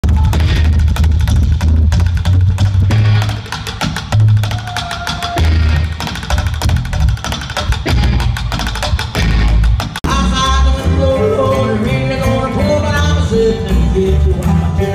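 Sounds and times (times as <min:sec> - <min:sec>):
upright bass notes: 0:00.0 - 0:04.4, 0:05.4 - 0:14.9
clicking stick beats: 0:00.0 - 0:10.5.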